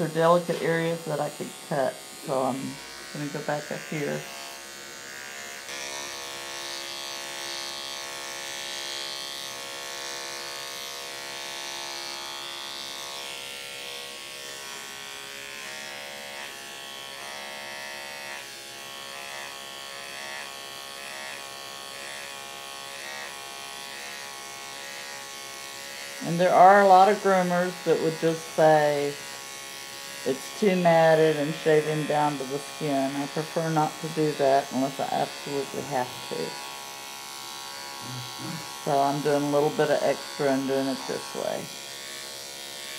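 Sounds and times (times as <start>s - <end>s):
electric clippers buzzing: 0.0s - 42.9s.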